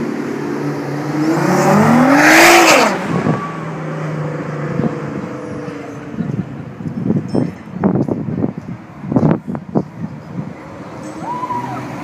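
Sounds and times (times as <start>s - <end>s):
car engine accelerating hard: 0.0s - 5.5s.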